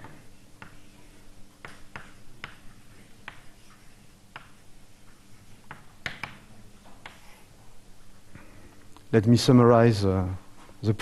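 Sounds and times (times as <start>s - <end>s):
chalk tapping on blackboard: 0.0s - 7.5s.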